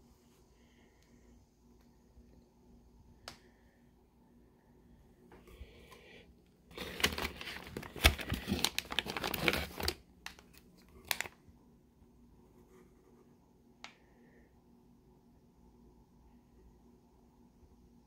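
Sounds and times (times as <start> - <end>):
plastic bags crinkling: 6.7 - 11.4.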